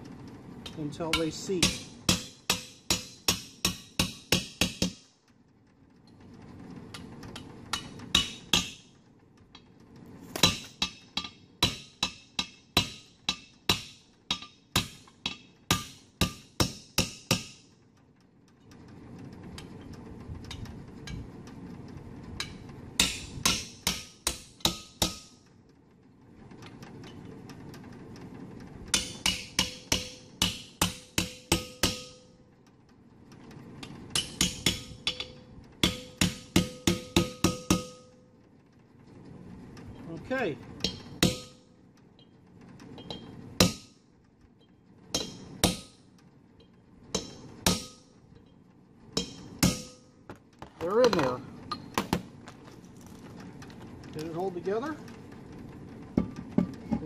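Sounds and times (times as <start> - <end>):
hammer striking metal punch: 1.1 - 5.1, 7.7 - 8.9, 10.4 - 17.7, 22.4 - 25.4, 28.9 - 32.4, 34.1 - 38.1, 40.8 - 41.7, 43.0 - 43.9, 45.2 - 46.0, 47.2 - 48.2, 49.2 - 50.4.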